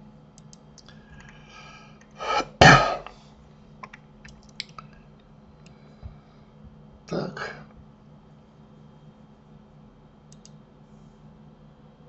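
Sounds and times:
computer mouse clicks: 0.4 - 1.3, 10.3 - 10.6
man clearing his throat: 2.2 - 3.1.

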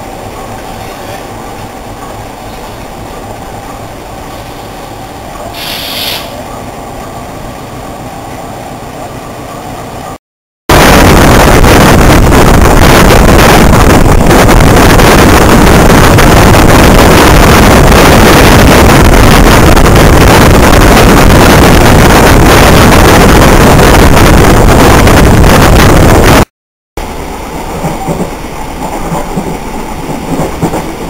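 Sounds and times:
train running noise: 0.0 - 31.0
wind rush on microphone: 10.7 - 26.5.

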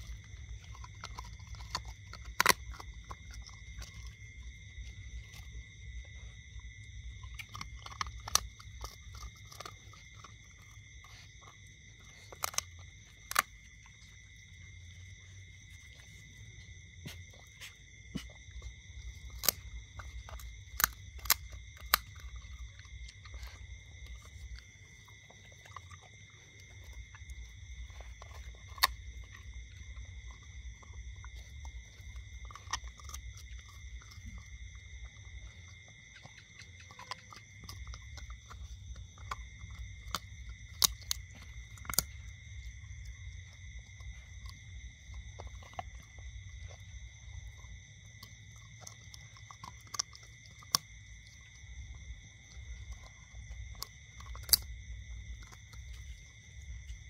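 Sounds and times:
bone cracking: 0.0 - 4.6, 7.2 - 14.3, 17.0 - 46.7, 52.6 - 55.9
dog gnawing a bone: 0.0 - 57.0.

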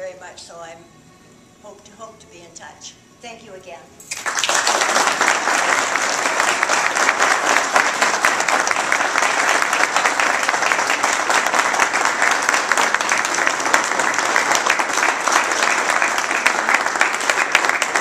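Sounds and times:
crowd applauding: 4.1 - 18.0.

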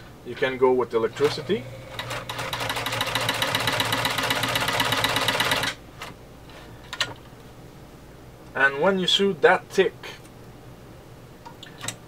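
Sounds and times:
sewing machine clattering: 2.0 - 5.8.

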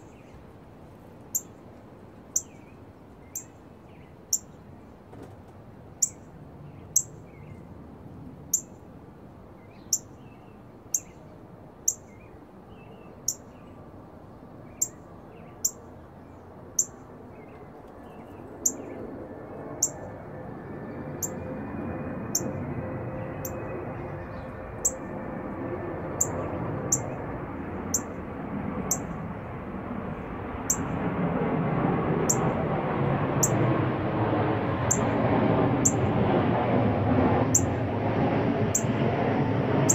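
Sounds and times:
bird chip calls: 1.3 - 1.6, 2.3 - 4.6, 6.8 - 7.6, 9.6 - 11.2, 11.8 - 12.3, 13.1 - 13.7, 14.7 - 15.8, 16.8 - 19.0, 19.8 - 20.0, 26.2 - 27.2.

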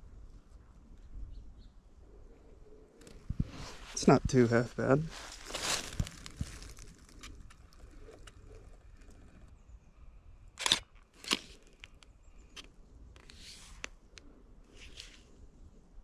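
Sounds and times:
dry vegetation crunching: 3.0 - 9.4.

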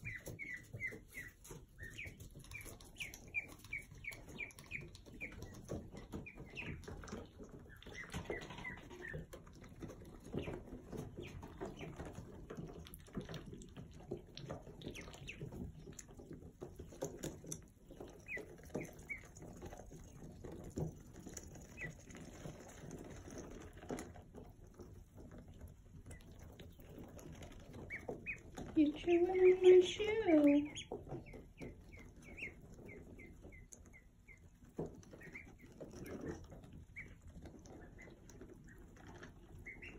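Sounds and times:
ducklings peeping: 0.0 - 39.9.

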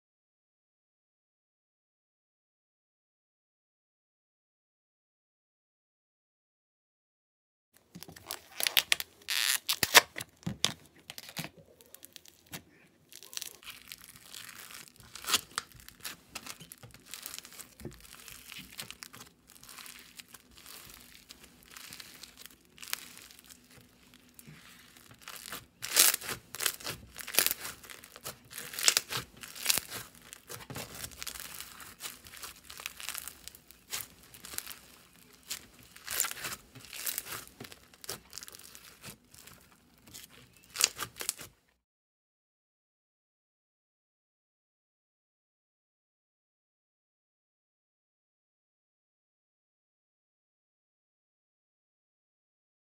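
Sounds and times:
slime squished by hand: 8.0 - 41.5.

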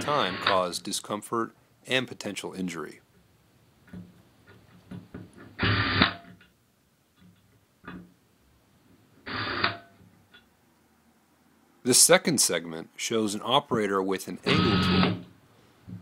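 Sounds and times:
electric screwdriver driving screws: 5.6 - 6.2, 14.5 - 15.2.

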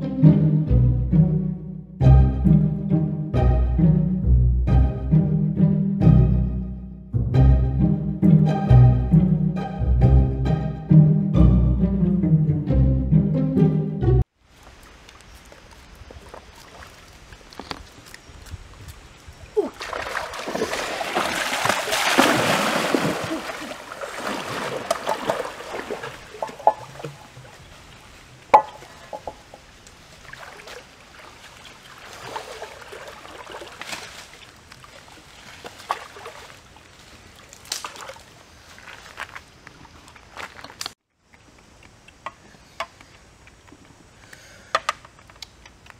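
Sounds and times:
water splashing and sloshing: 14.2 - 41.0
metal pot knocking on stones: 26.4 - 27.2, 28.5 - 29.4.

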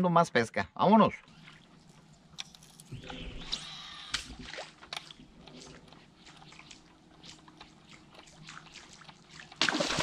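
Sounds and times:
water sloshing and splashing: 4.2 - 10.0.

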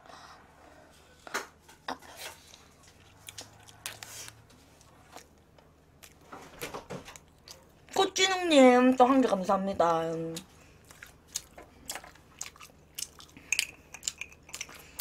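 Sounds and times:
biting and chewing bread: 2.2 - 6.4, 10.5 - 15.0.

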